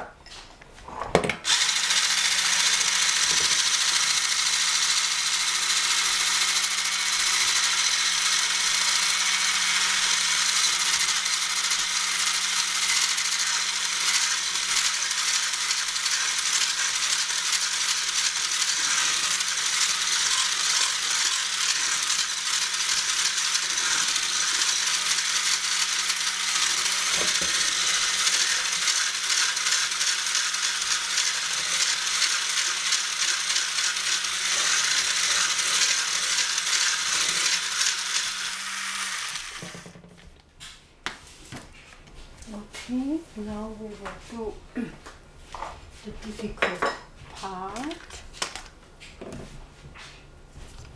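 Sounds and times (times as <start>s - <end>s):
electric whisk running: 1.4s - 40.2s.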